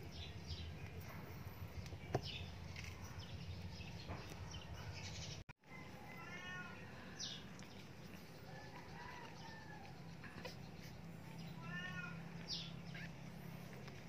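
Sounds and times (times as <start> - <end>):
puppies crying: 8.0 - 13.8.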